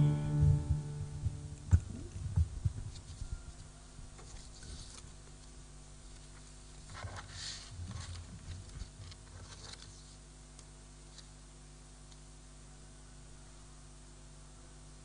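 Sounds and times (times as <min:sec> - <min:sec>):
low electrical hum: 0:00.0 - 0:15.0
microphone handling rustles and knocks: 0:00.4 - 0:03.4.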